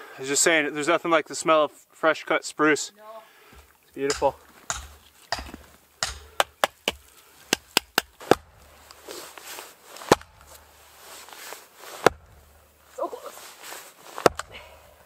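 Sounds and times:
axe chopping firewood: 3.5s - 9.4s, 10.0s - 11.1s, 12.0s - 13.0s, 14.1s - 15.0s.

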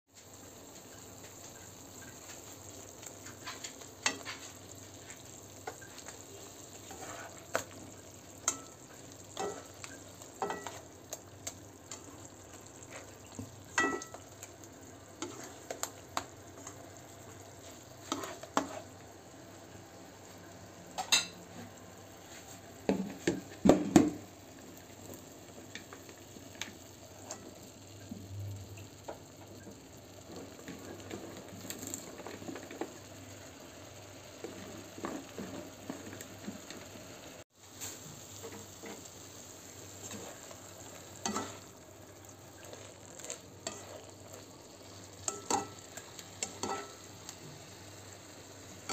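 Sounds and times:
faint frying sizzle: 0.1s - 48.9s
spatula scraping and knocking wok: 2.2s - 14.4s, 15.2s - 19.0s, 37.7s - 47.4s.

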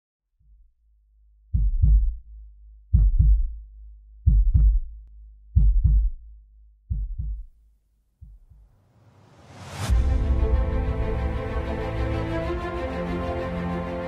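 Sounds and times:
heartbeat thumps: 1.5s - 2.3s, 2.9s - 3.6s, 4.2s - 5.0s, 5.6s - 6.3s, 6.9s - 7.5s, 8.2s - 8.7s
low hum: 9.4s - 14.0s.

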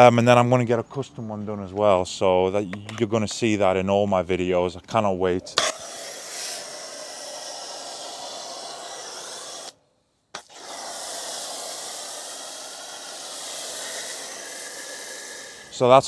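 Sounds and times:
foam gun spraying hiss: 5.6s - 9.8s, 10.4s - 16.0s.

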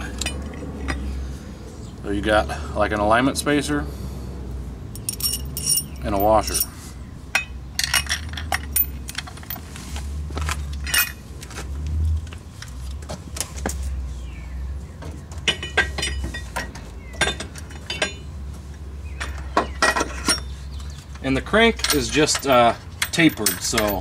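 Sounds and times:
metal clinks and taps: 4.9s - 6.7s, 7.3s - 9.6s, 15.4s - 18.3s, 19.2s - 24.0s.

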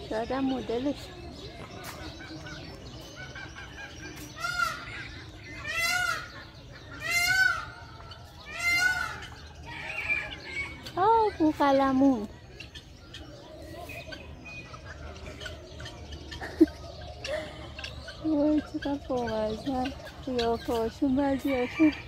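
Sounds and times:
small birds chirping: 0.0s - 22.0s
large fowl calling loudly: 4.4s - 5.0s, 5.6s - 6.4s, 7.0s - 9.4s.

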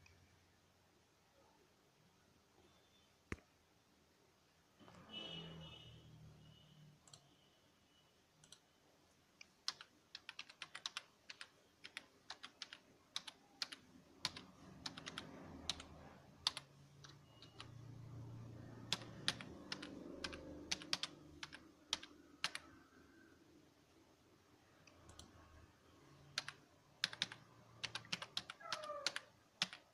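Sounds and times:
keyboard typing clicks: 8.4s - 8.7s, 9.4s - 17.8s, 18.8s - 22.8s, 24.8s - 25.4s, 26.3s - 29.9s.

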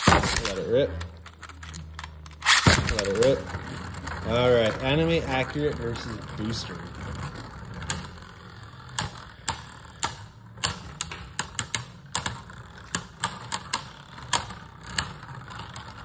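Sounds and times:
spinning tops clacking: 0.0s - 15.9s
steady low hum: 0.0s - 16.0s.

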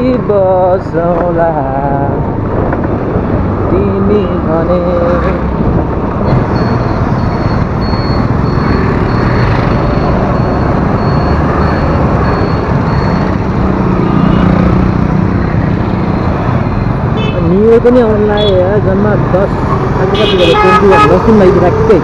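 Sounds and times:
passing motorbikes: 0.0s - 22.0s
wind and road noise: 0.0s - 22.0s
faint high beep: 6.5s - 13.4s.

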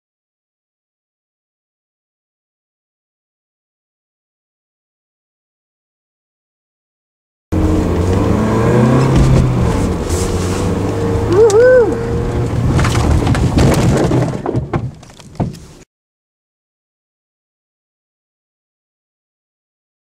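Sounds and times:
rising and falling tone: 7.5s - 12.6s
car engine accelerating: 7.5s - 13.6s.

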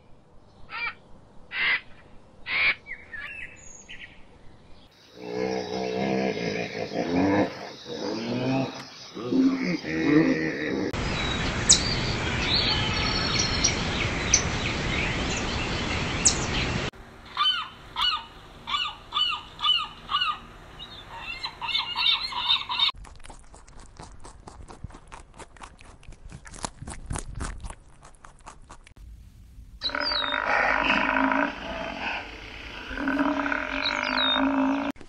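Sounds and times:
gulls calling: 6.5s - 23.0s, 29.8s - 34.9s.

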